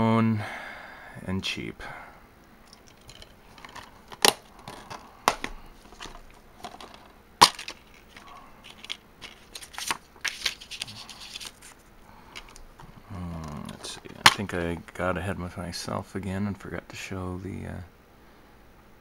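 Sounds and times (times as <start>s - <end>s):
plastic cases clicking and snapping: 2.7s - 11.5s, 12.3s - 14.6s
paper insert rustling: 3.5s - 12.6s, 13.4s - 14.8s.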